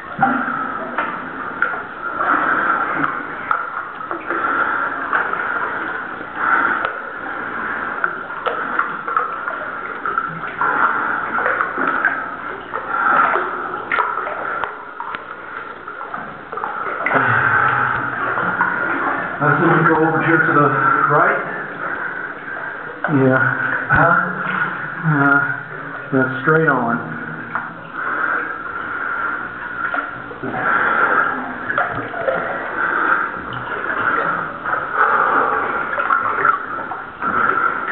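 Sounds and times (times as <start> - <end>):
water sloshing and splashing: 0.0 - 37.9.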